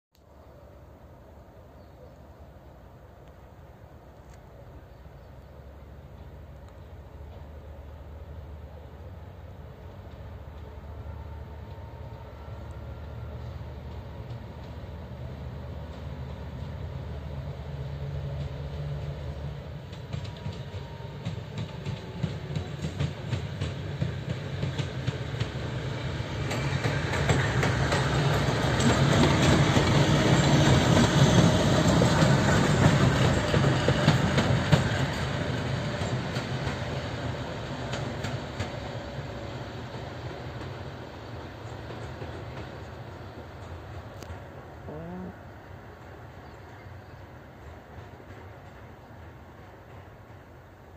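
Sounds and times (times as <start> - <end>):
diesel locomotive engine drone: 0.2 - 50.9
train wheels clattering over rail joints: 19.7 - 44.4.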